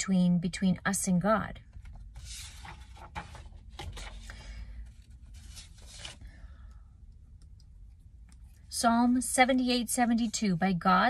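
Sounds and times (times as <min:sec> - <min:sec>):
paper rustling and sliding: 0:02.1 - 0:06.2.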